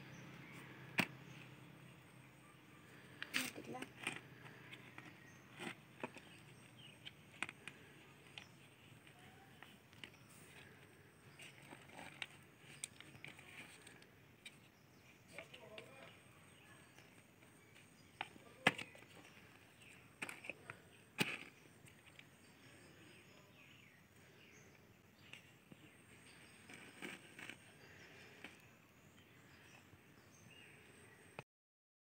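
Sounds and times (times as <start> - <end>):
small clicks of plastic pots: 3.1 - 22.8, 25.2 - 28.7.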